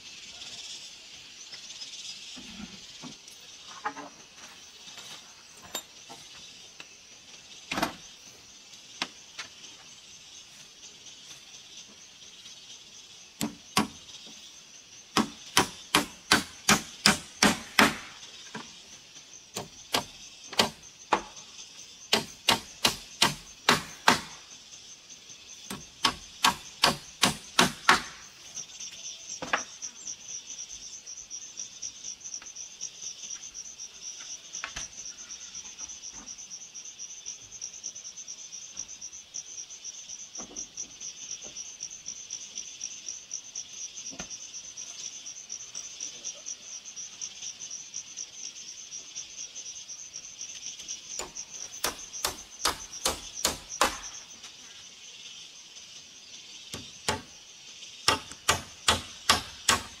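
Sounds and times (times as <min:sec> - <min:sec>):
insect trill: 0:00.0 - 1:00.0
hammer striking wood: 0:13.4 - 0:14.0, 0:15.2 - 0:18.2, 0:19.6 - 0:21.3, 0:22.1 - 0:24.4, 0:25.7 - 0:28.2, 0:51.2 - 0:54.2, 0:56.8 - 0:57.3, 0:58.1 - 1:00.0.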